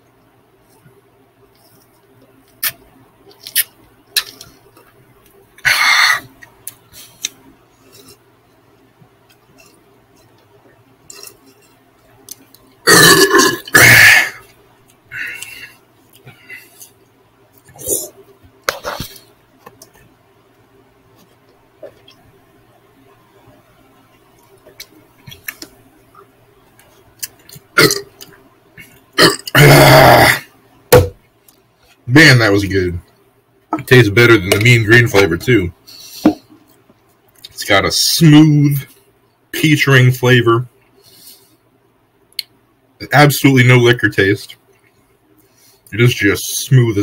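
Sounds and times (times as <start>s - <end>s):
person gulping a drink: 12.3s - 14.5s, 27.2s - 30.4s
man belching: 12.8s - 14.4s, 27.8s - 28.1s, 29.2s - 30.5s.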